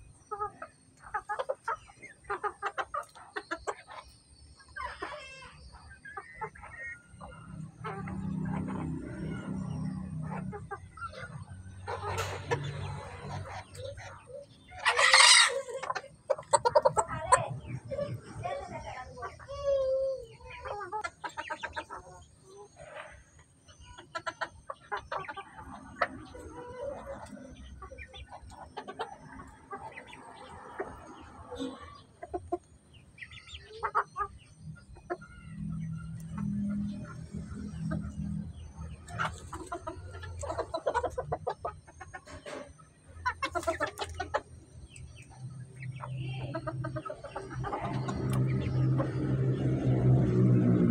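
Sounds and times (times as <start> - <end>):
chickens clucking: 0.0 - 50.9
loud harsh chicken call: 14.7 - 15.9
short chicken calls: 14.7 - 16.7.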